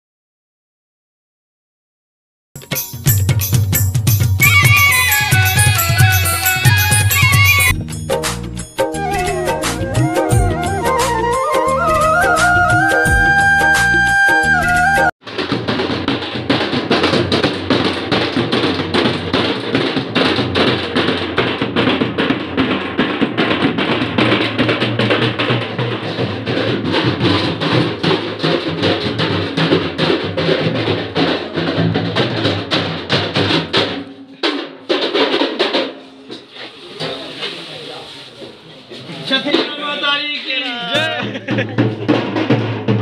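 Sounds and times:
bass drum: 2.6s - 34.1s, 41.0s - 43.0s
drums beaten in fast rhythm: 2.6s - 37.2s, 39.4s - 43.0s.

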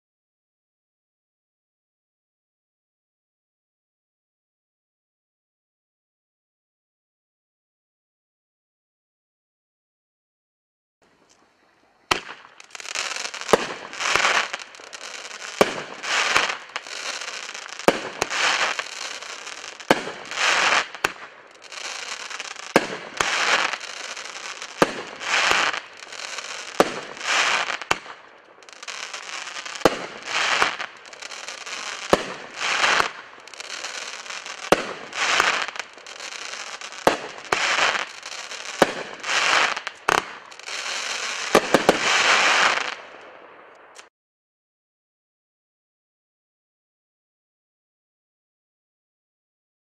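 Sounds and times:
firework shots with crackle: 12.1s - 44.1s.

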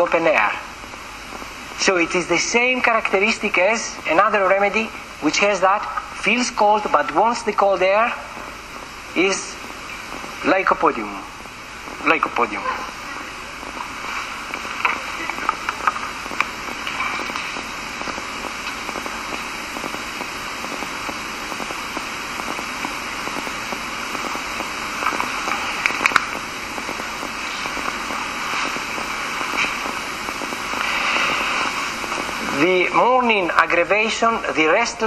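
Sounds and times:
room noise hiss: 0.0s - 35.0s
sharp clicks and crackles: 13.1s - 32.6s.

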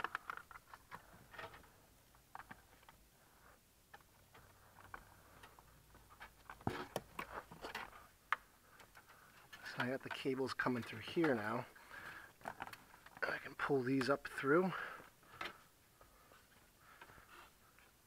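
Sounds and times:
cables rustling and scraping: 0.0s - 18.0s.

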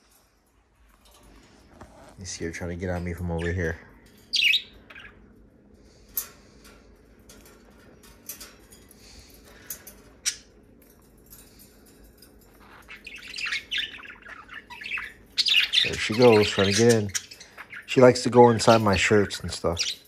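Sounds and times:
budgerigars chirping: 4.3s - 5.2s, 12.6s - 20.0s.

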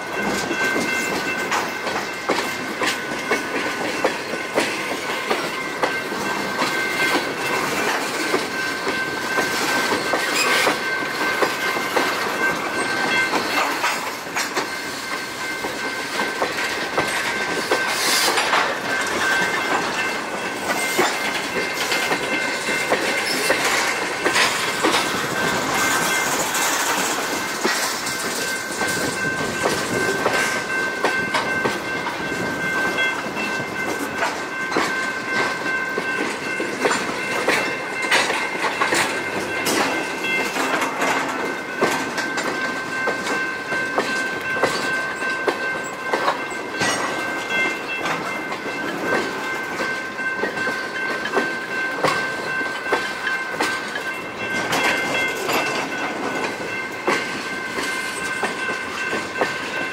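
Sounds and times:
train wheels clattering over rail joints: 0.0s - 59.9s.

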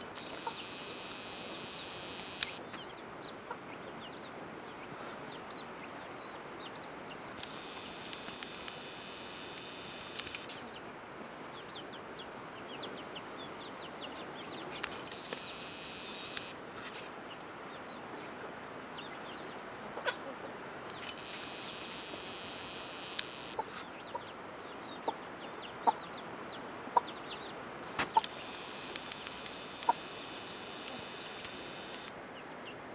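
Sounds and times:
chicks peeping: 0.0s - 10.9s, 11.6s - 16.6s, 20.9s - 32.8s
high buzzing trill: 0.2s - 2.6s, 7.4s - 10.5s, 15.1s - 16.6s, 21.2s - 23.6s, 28.3s - 32.1s
hen clucking: 0.2s - 2.8s, 20.0s - 24.3s, 28.0s - 32.1s.

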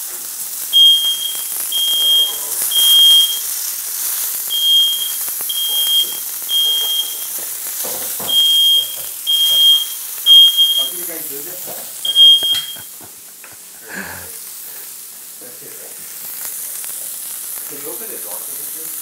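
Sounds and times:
smoke alarm beeping: 0.6s - 13.0s.

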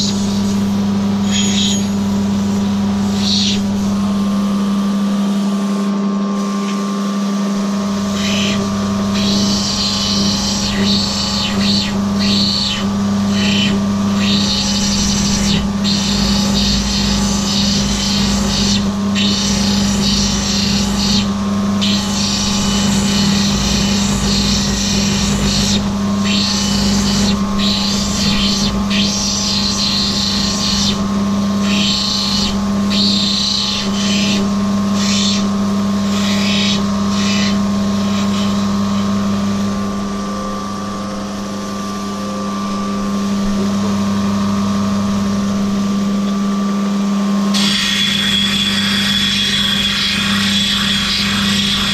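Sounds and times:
grinding machine motor hum: 0.0s - 51.9s
stone hissing on grinding wheel: 8.1s - 39.0s, 47.5s - 51.9s.

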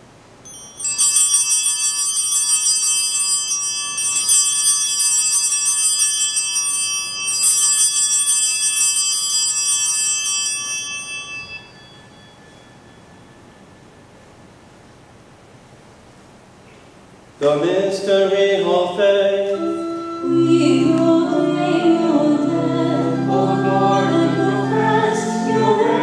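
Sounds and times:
altar bells ringing: 0.4s - 14.3s, 19.9s - 26.0s.

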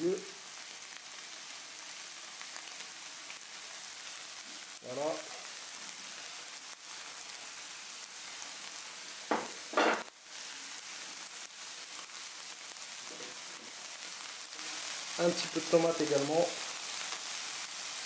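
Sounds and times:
meat sizzling in a frying pan: 0.0s - 18.0s
plate knocking on table: 9.3s - 10.1s.

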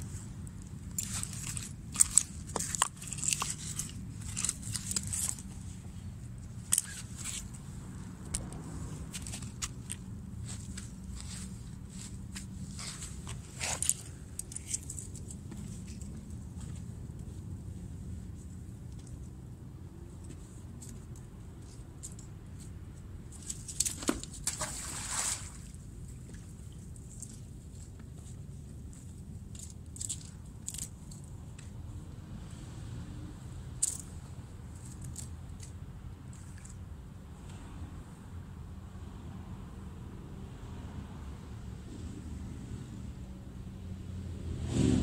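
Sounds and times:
crunching rustling handling noise: 0.0s - 7.8s, 8.4s - 17.4s.

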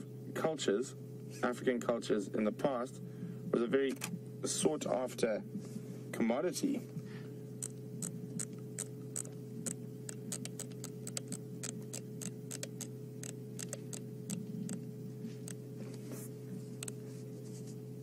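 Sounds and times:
low hum: 0.0s - 18.0s
irregular sharp clicks: 7.6s - 14.8s.

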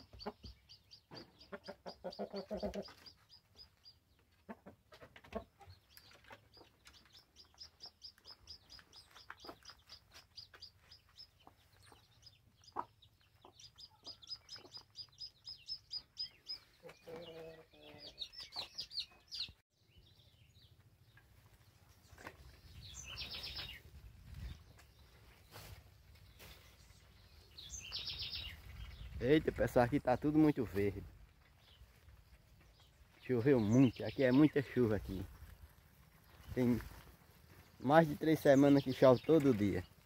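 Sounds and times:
low clucks: 0.0s - 3.6s, 4.2s - 10.7s, 12.6s - 15.0s
birds chirping: 0.0s - 40.0s
chicks peeping: 0.0s - 40.0s.

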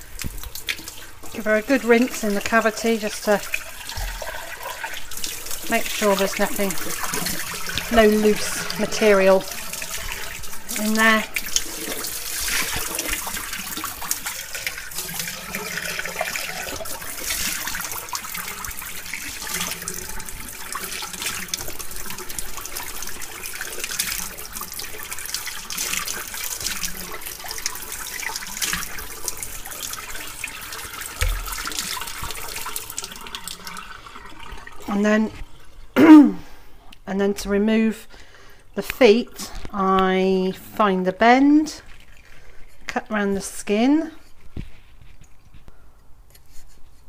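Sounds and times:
tap water splashing into sink: 0.0s - 35.6s
dull thump: 31.2s - 31.6s.

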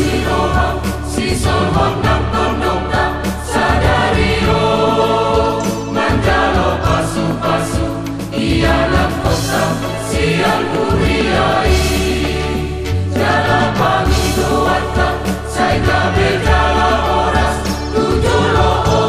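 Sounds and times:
choir singing: 0.0s - 19.0s
instrumental accompaniment: 0.0s - 19.0s.

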